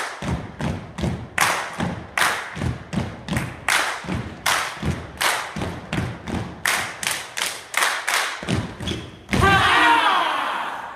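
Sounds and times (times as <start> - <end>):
group stomping and clapping: 0.0 - 9.8
loud group shout: 9.4 - 10.9.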